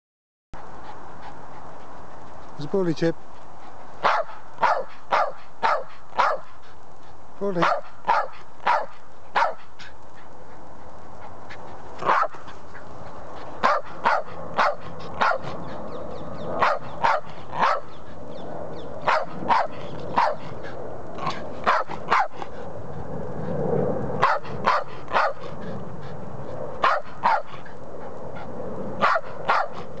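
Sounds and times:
dog barking: 0:04.0 - 0:06.5, 0:07.6 - 0:09.7, 0:12.0 - 0:12.4, 0:13.6 - 0:15.6, 0:16.6 - 0:18.0, 0:19.0 - 0:20.5, 0:21.2 - 0:22.4, 0:24.2 - 0:25.5, 0:26.8 - 0:27.6, 0:29.0 - 0:29.9.

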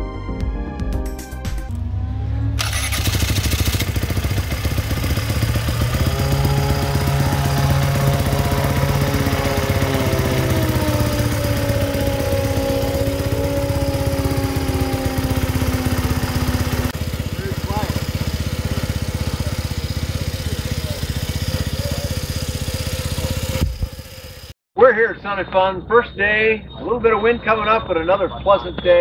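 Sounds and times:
ultralight aircraft engine running: 0:02.6 - 0:24.5.

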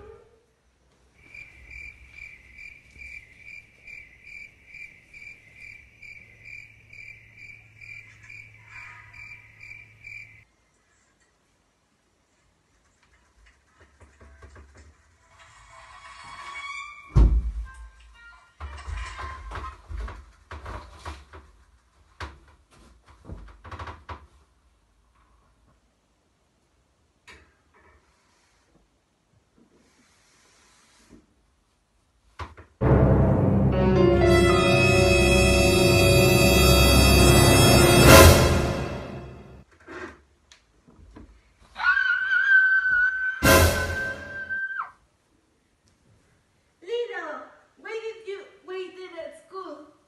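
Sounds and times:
cricket chirping: 0:01.2 - 0:10.4.

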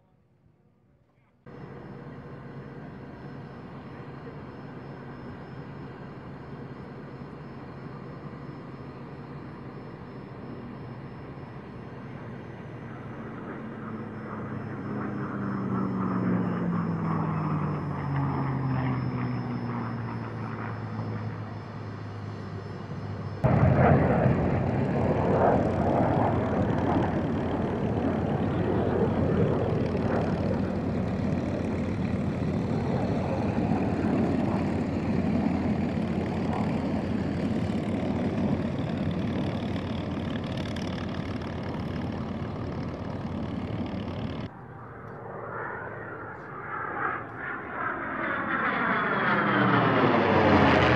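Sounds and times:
propeller plane flying by: 0:01.5 - 0:50.9
twin piston engines running: 0:23.0 - 0:44.5.

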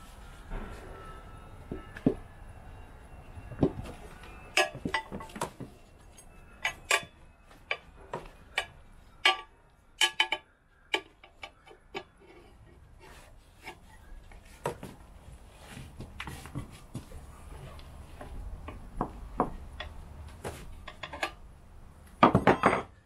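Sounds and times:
tyre tools clinking on metal rim: 0:03.6 - 0:12.2.

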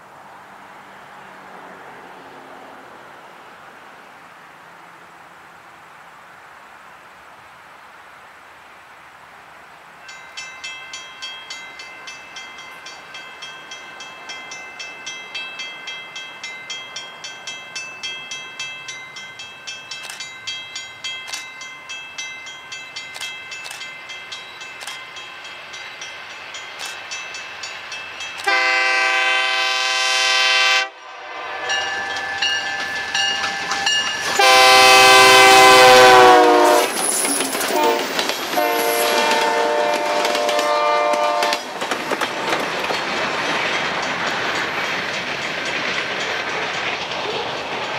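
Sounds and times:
train wheels over rail joints: 0:10.0 - 0:30.2, 0:31.6 - 0:47.9
pulsing ringing bell: 0:10.1 - 0:28.4, 0:31.6 - 0:34.6
locomotive horn blast: 0:28.4 - 0:32.8, 0:34.3 - 0:37.0, 0:37.7 - 0:41.7.

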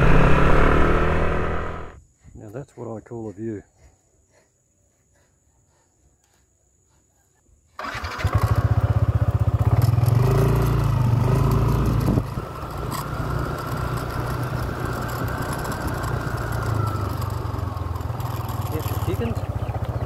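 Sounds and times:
motorcycle engine running: 0:00.0 - 0:02.0, 0:07.8 - 0:20.0.

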